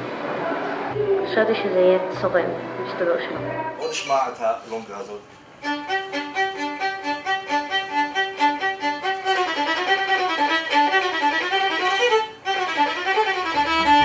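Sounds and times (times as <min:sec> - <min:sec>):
solo violin playing fast dance: 0:05.6 - 0:14.0.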